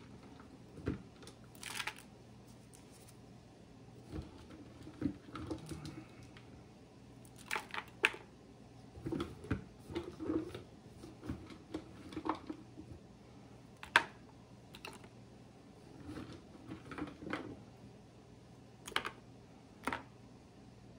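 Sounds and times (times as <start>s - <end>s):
hard pieces clicking in plastic container: 1.5s - 2.1s.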